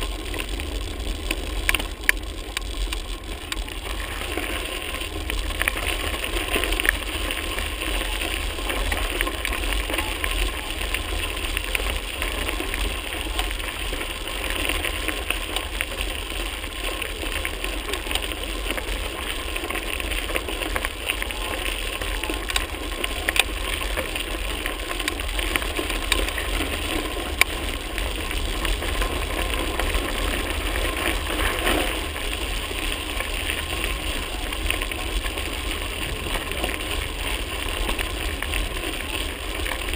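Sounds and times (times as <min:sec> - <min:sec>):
bike tyres on gravel: 0:00.0 - 0:39.9.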